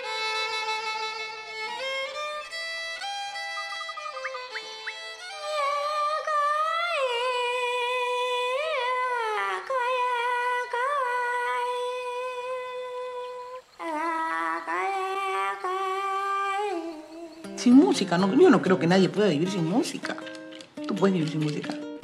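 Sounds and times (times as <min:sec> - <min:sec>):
woman singing unaccompanied: 0:05.2 - 0:18.6.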